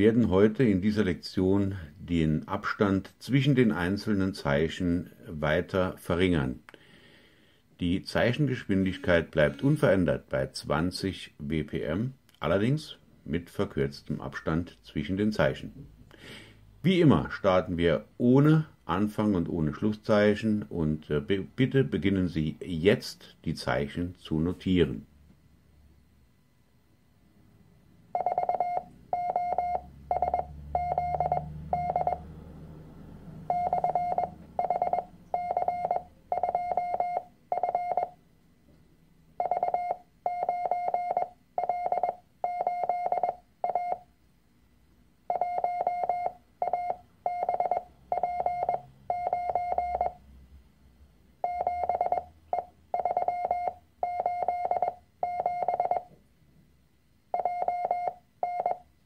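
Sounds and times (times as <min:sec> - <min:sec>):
morse code beeps: 0:28.1 - 0:32.3, 0:33.5 - 0:38.2, 0:39.4 - 0:44.0, 0:45.3 - 0:50.2, 0:51.4 - 0:56.1, 0:57.3 - 0:58.8.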